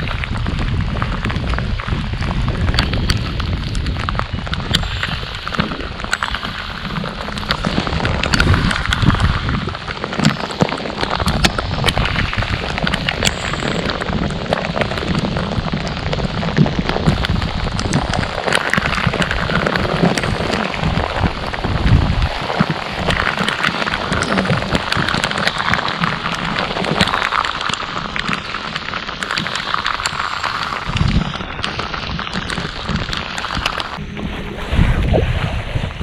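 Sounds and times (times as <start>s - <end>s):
low rumble: 0.0s - 23.4s, 28.7s - 36.0s
rain falling on water and boat: 0.0s - 36.0s.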